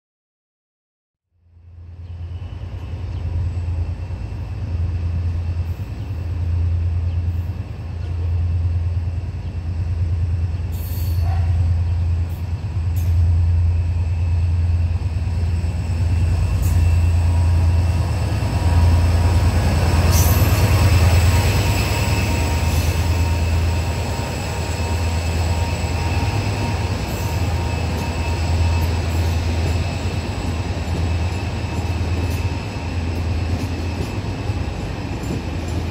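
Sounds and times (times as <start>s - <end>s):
locomotive low rumble: 1.6s - 35.9s
train rolling noise: 1.7s - 35.9s
high wheel squeal: 18.8s - 35.6s.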